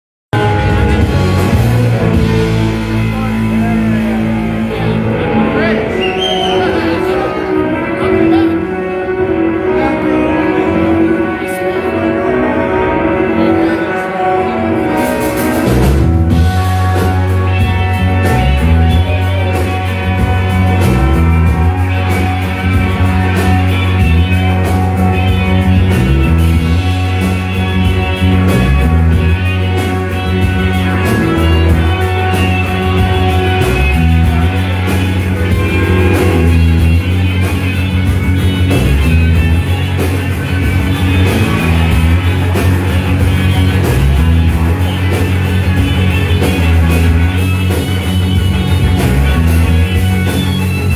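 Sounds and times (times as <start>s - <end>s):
bass line: 0.3s - 50.9s
drums: 0.3s - 50.9s
electric guitar: 0.3s - 50.9s
live rock band playing: 0.3s - 50.9s.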